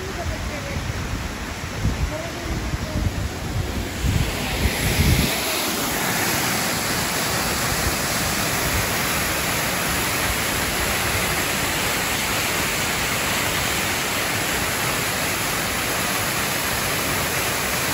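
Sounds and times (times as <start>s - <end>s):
wind buffeting on microphone: 0.0s - 6.8s
waterfall pouring into pool: 3.7s - 17.9s.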